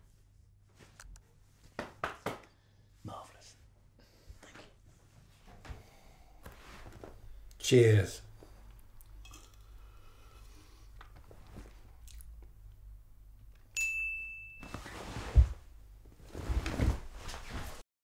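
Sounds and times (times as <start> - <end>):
bright ding: 13.8 - 14.9
rustling on leather sofa: 14.6 - 17.8
thumps on sofa: 14.7 - 15.7.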